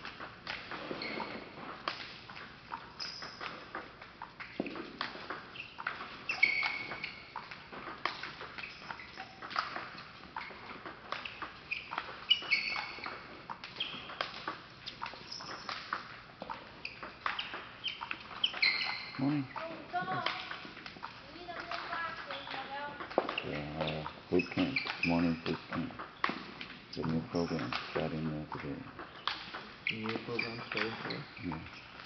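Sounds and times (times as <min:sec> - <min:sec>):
table tennis balls clicking: 0:00.0 - 0:32.0
short high squeaks: 0:00.9 - 0:01.4, 0:05.5 - 0:07.4, 0:08.6 - 0:09.7, 0:11.2 - 0:14.3, 0:14.9 - 0:16.0, 0:16.8 - 0:20.2, 0:23.4 - 0:25.5, 0:29.2 - 0:32.0.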